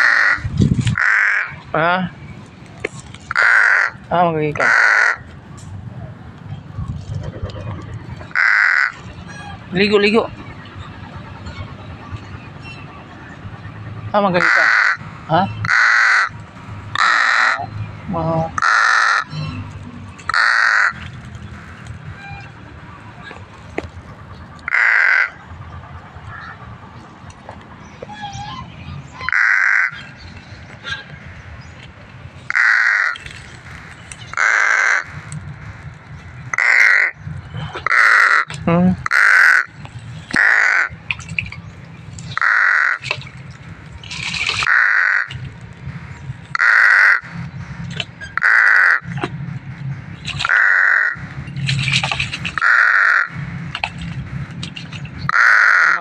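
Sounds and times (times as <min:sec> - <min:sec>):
crow cawing: 0:00.0 - 0:01.6, 0:03.3 - 0:04.0, 0:04.6 - 0:05.3, 0:08.3 - 0:09.1, 0:14.4 - 0:15.0, 0:15.6 - 0:17.7, 0:18.6 - 0:19.4, 0:20.3 - 0:22.2, 0:24.7 - 0:25.4, 0:26.3 - 0:26.6, 0:29.2 - 0:30.2, 0:32.5 - 0:35.3, 0:36.5 - 0:37.2, 0:37.8 - 0:39.8, 0:40.4 - 0:40.9, 0:42.3 - 0:43.2, 0:44.6 - 0:45.4, 0:46.5 - 0:47.4, 0:48.4 - 0:49.1, 0:50.4 - 0:51.3, 0:52.6 - 0:53.4, 0:55.3 - 0:56.0.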